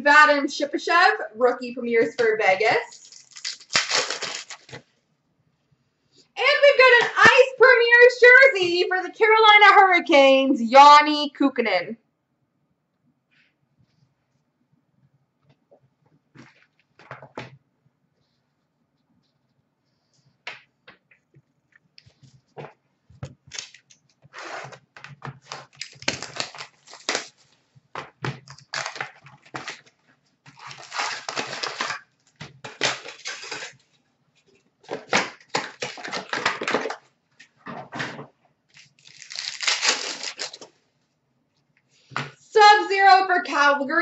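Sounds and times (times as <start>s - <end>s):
card pack wrappers crinkling: 2.9s - 4.8s, 25.4s - 27.6s, 28.3s - 29.9s, 30.5s - 33.9s, 34.9s - 37.0s, 38.7s - 40.7s
cards clicking and rustling: 34.9s - 37.0s.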